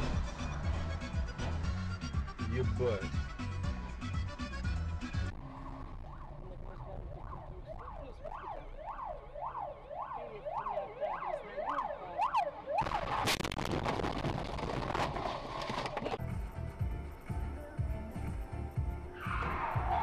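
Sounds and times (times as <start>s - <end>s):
siren yelping: 5.4s - 13.2s, 19.2s - 20.0s
loud crash and clatter: 12.8s - 16.1s.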